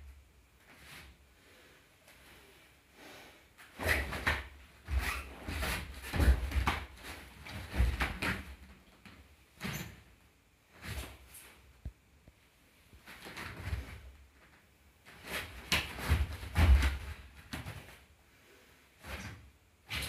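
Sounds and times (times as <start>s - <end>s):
bare feet stamping on mats: 4.0s - 8.7s, 15.3s - 18.0s.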